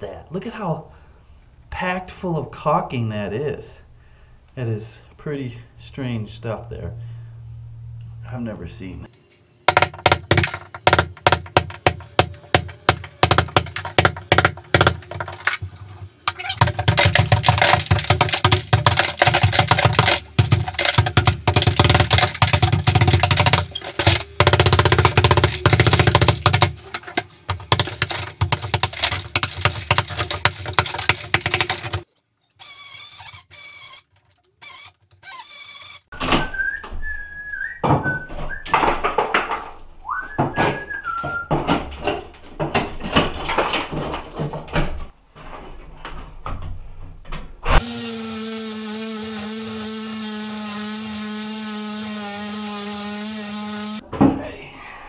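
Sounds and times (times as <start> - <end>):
plaster scraping and knocking: 9.7 - 32.1, 37.8 - 47.5
hammer striking chisel: 16.3 - 32.1.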